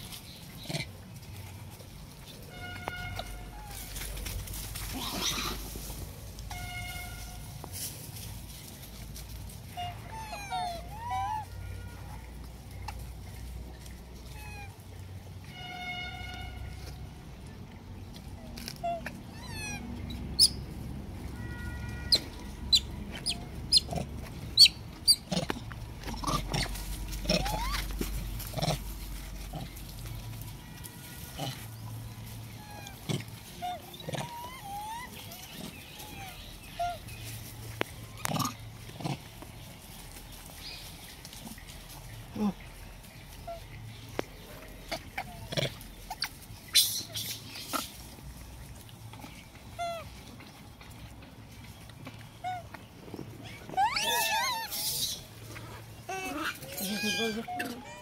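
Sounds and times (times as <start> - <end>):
monkeys grunting and squeaking: 0.6 - 1.0, 4.6 - 6.6, 9.7 - 11.5, 14.2 - 14.8, 18.3 - 20.6, 22.1 - 29.8, 32.5 - 37.2, 38.1 - 39.4, 44.8 - 48.1, 49.2 - 50.2, 52.4 - 58.0
monkey squeaks: 9.8 - 11.4, 14.4 - 14.7, 18.6 - 19.8, 20.4 - 20.6, 22.1 - 24.0, 24.6 - 25.4, 26.2 - 27.9, 33.6 - 35.4, 46.1 - 47.9, 53.4 - 55.2, 56.1 - 58.0.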